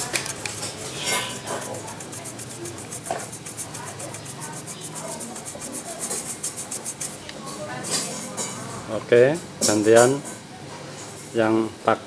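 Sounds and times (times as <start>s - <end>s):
toothbrush scrubbing metal pipe: 0.0s - 7.2s.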